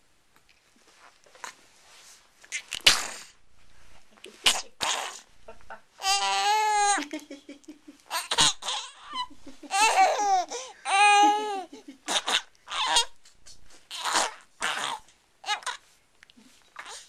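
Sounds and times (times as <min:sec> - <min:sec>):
baby laughing: 0:04.4 - 0:13.2
baby squealing: 0:04.5 - 0:05.2, 0:06.0 - 0:07.0, 0:08.1 - 0:13.2, 0:13.9 - 0:15.8.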